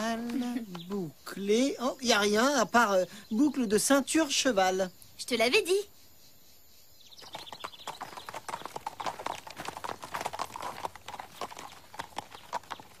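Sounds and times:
horse hooves clip-clopping: 0:00.0 - 0:00.9, 0:07.1 - 0:13.0.

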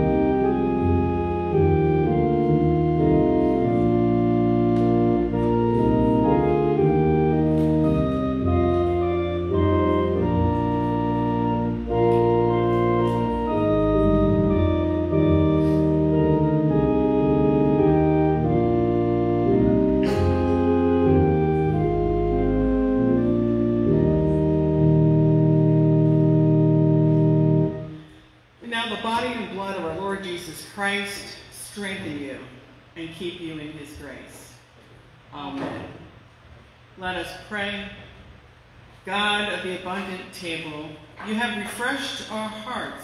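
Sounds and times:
organ playing slow hymn: 0:00.0 - 0:28.1.

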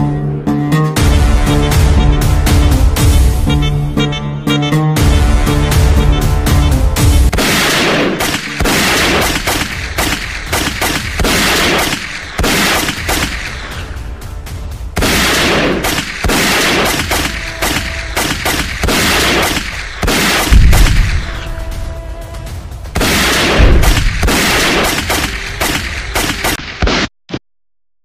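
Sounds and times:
gunfire bursts and shots: 0:07.3 - 0:21.7, 0:22.7 - 0:27.1
explosion boom: 0:20.4 - 0:21.9, 0:23.0 - 0:24.6.

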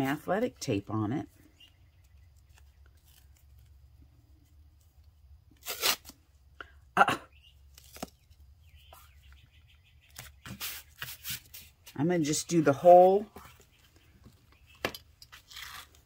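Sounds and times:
tape crackles: 0:01.6 - 0:06.2, 0:07.6 - 0:08.4, 0:13.4 - 0:16.0
tape tearing: 0:02.4 - 0:03.8, 0:05.5 - 0:06.2, 0:07.7 - 0:08.3, 0:15.2 - 0:16.0.

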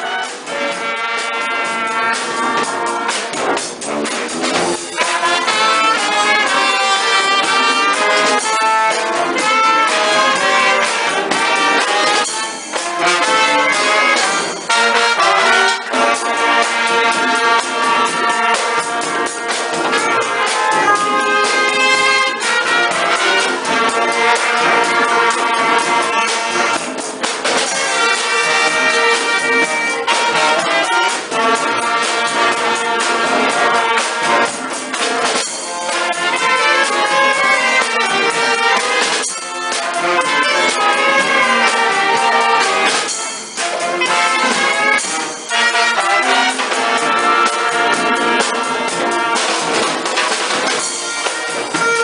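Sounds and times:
brass band playing upbeat music: 0:00.0 - 0:52.0.

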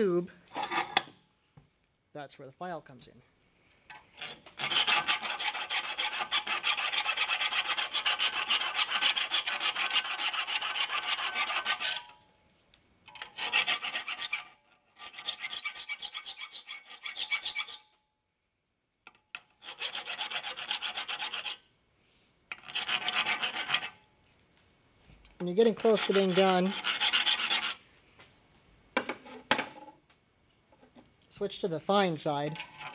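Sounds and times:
file rasping on brass: 0:04.2 - 0:12.1, 0:13.2 - 0:17.8, 0:19.6 - 0:21.6, 0:22.5 - 0:24.0, 0:25.8 - 0:27.8.

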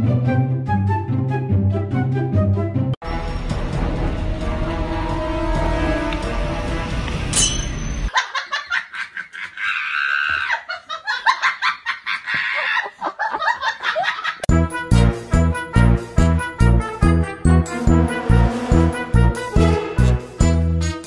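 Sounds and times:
background music: 0:00.0 - 0:08.1, 0:14.5 - 0:21.0
choppy laughter: 0:08.1 - 0:14.5
music with heavy steady beat: 0:14.5 - 0:21.0.

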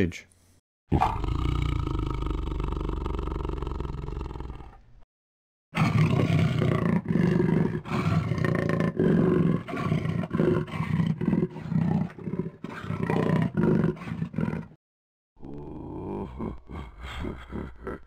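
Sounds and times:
lion roaring: 0:00.9 - 0:04.8, 0:05.8 - 0:14.8.

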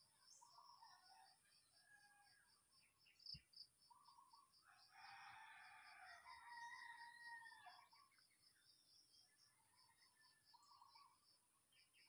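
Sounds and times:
distant rooster crowing: 0:04.6 - 0:08.0.

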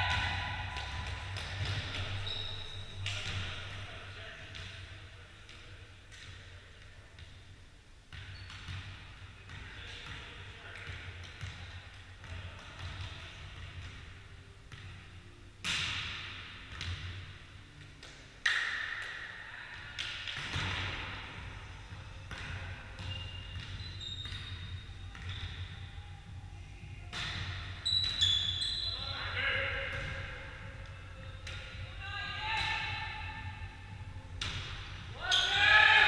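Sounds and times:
volleyball smacks with reverberation: 0:15.6 - 0:17.2, 0:18.0 - 0:19.3, 0:34.4 - 0:35.0.

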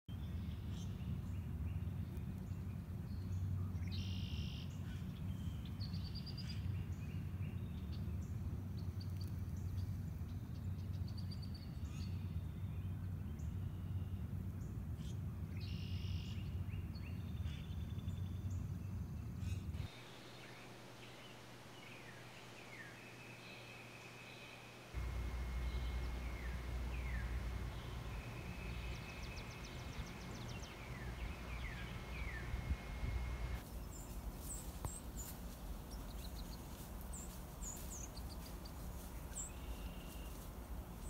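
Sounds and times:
songbirds singing: 0:00.1 - 0:41.0
steady low rumble: 0:24.8 - 0:33.6.

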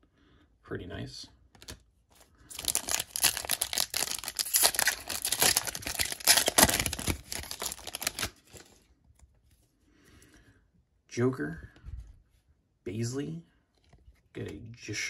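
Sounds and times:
foil wrapper tearing and crinkling: 0:02.5 - 0:08.7.

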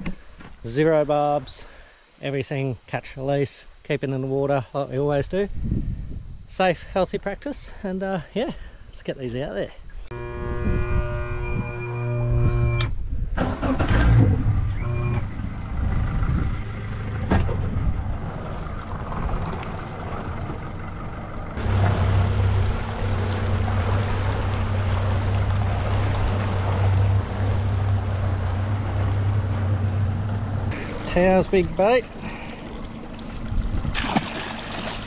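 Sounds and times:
outboard motor running: 0:10.1 - 0:12.8, 0:14.2 - 0:35.0
wind and water rushing: 0:13.0 - 0:35.0.

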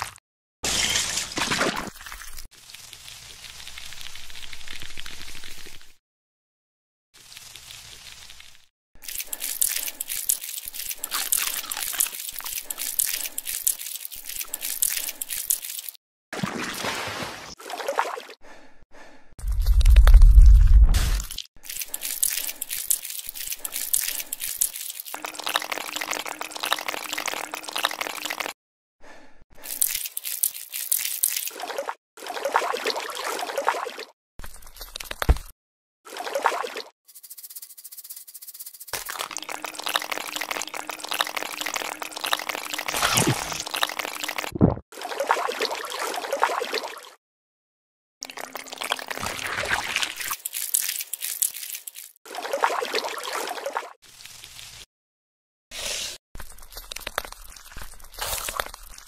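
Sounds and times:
wet slurping and gurgling: 0:09.0 - 0:16.0, 0:19.4 - 0:28.6, 0:29.6 - 0:35.4, 0:39.0 - 0:47.2, 0:48.2 - 0:54.4, 0:55.7 - 0:59.0.

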